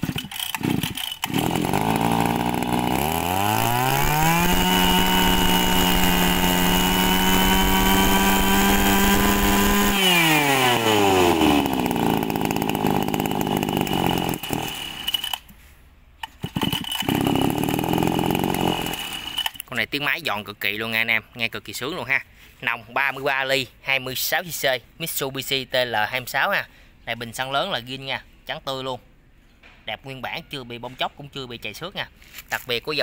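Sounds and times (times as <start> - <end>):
brush cutter engine revving: 0.0 - 15.6, 16.2 - 19.7.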